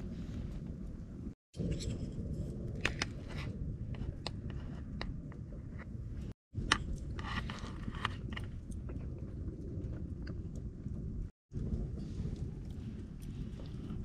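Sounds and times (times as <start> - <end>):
low rumble: 0.0 - 14.0
wood fire crackling: 5.2 - 14.0.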